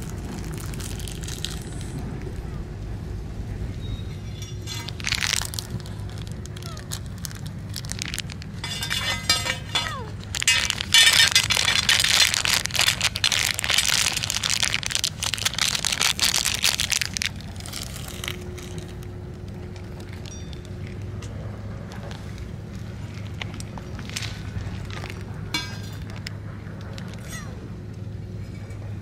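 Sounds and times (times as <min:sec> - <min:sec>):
plastic pouch crinkling: 0:00.0 - 0:02.0, 0:04.7 - 0:19.1
dry food into metal dish: 0:04.4 - 0:05.8, 0:08.0 - 0:14.7.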